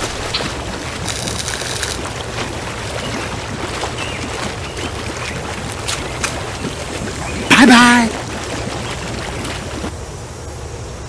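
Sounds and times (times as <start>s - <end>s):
waves washing: 0.0s - 10.4s.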